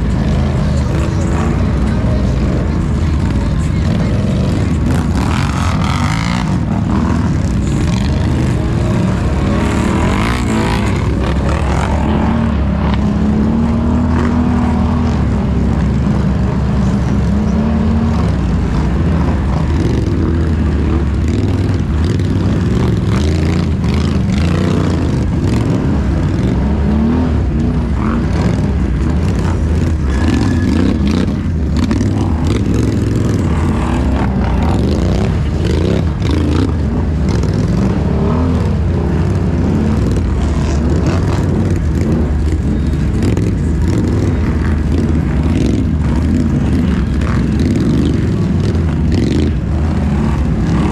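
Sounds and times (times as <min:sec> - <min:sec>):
atv engine revving: 0:00.0 - 0:50.9.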